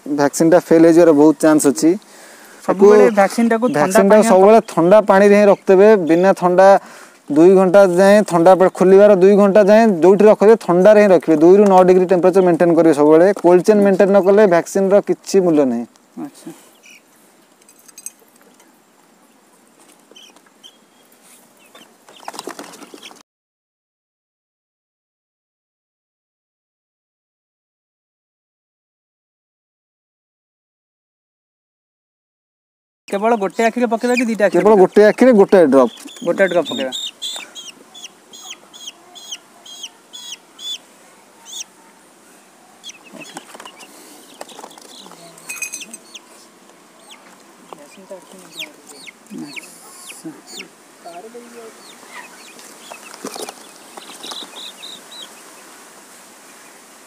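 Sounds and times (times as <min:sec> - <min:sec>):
chick peeping: 0:02.7 - 0:06.6, 0:16.7 - 0:17.1, 0:20.1 - 0:20.9, 0:33.1 - 0:42.0, 0:42.8 - 0:46.4, 0:47.0 - 0:55.7
scuffling and wing flapping: 0:19.7 - 0:23.2, 0:33.7 - 0:37.8, 0:42.8 - 0:49.9, 0:51.4 - 0:55.7.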